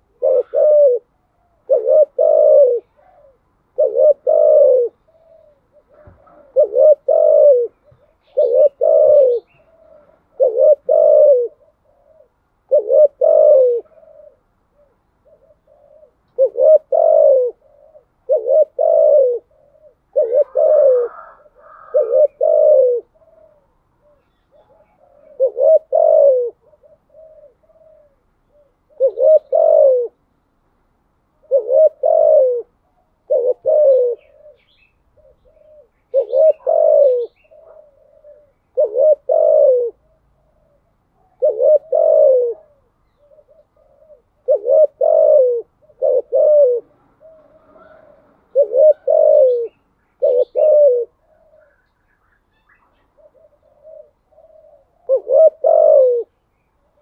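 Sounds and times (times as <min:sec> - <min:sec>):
dove cooing: 0:00.0 - 0:30.5, 0:31.3 - 0:57.0.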